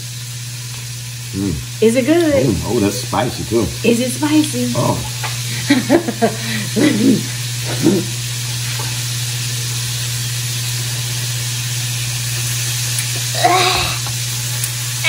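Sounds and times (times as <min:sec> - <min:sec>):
constant hiss: 0:00.0 - 0:15.0
person humming mm: 0:01.3 - 0:01.7, 0:06.7 - 0:08.2, 0:13.2 - 0:14.2.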